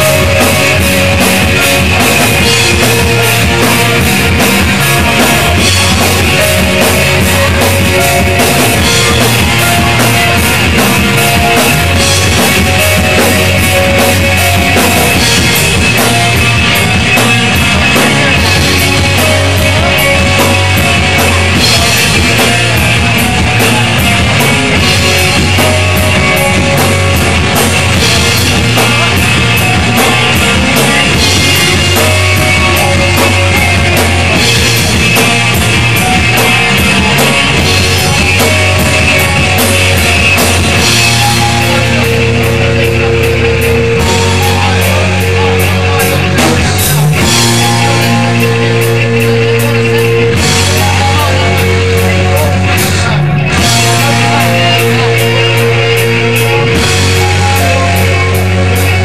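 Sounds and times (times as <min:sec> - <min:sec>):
drum kit beat: 0:00.0 - 0:59.0
electric guitar: 0:00.0 - 0:59.0
low bass notes: 0:00.0 - 0:59.0.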